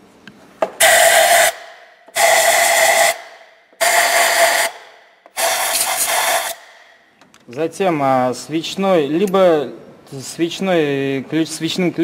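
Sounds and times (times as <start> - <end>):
compressed air blowgun hissing: 0.8 - 6.9.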